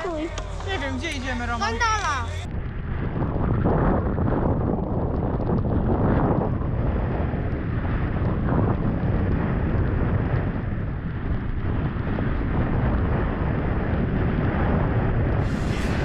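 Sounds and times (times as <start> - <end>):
wind rumble on microphone: 0.0 - 16.0
skis sliding over snow: 15.4 - 16.0.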